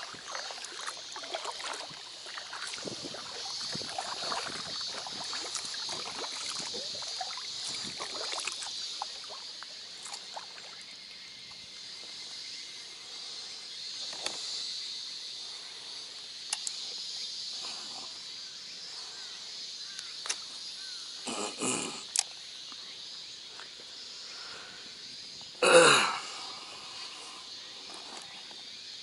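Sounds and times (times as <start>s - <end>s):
paddle splashing water: 0.0s - 11.0s
cicadas chorus: 0.0s - 29.0s.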